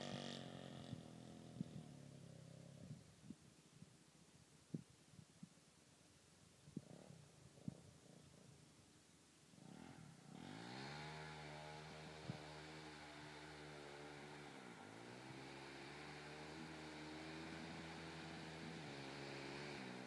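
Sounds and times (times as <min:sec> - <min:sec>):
distant motorcycle engine: 0:00.0 - 0:03.4, 0:09.5 - 0:20.0.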